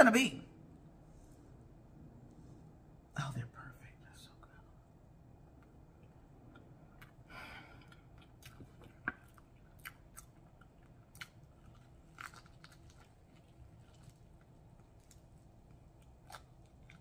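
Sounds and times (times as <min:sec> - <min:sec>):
person chewing: 0:05.6 - 0:17.0.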